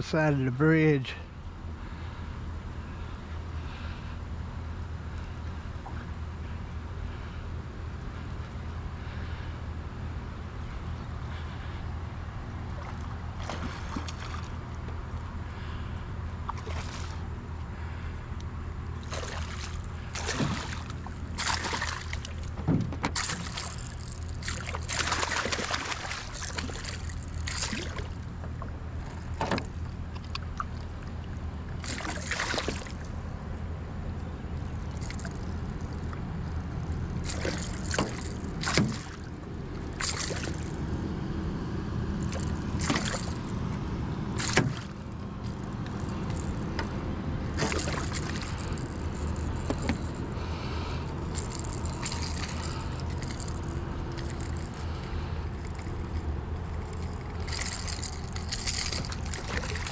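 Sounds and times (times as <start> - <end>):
low rumble of river water: 0.0 - 59.9
fish splashing at surface: 16.5 - 17.3, 19.0 - 28.2, 31.8 - 33.1, 37.2 - 40.8, 42.2 - 43.5, 44.4 - 46.9, 47.5 - 50.2, 56.9 - 59.9.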